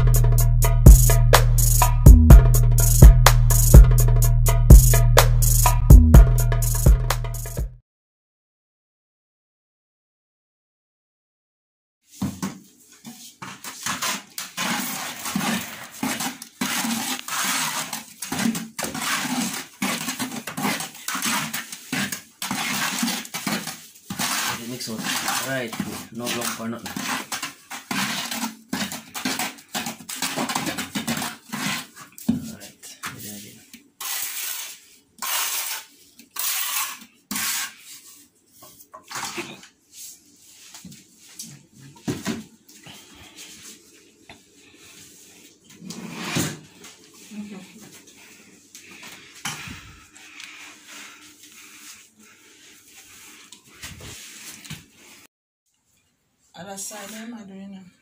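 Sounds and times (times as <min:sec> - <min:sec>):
putty knife scraping plastic bucket: 0:13.0 - 0:32.4, 0:34.0 - 0:38.0, 0:45.8 - 0:46.6.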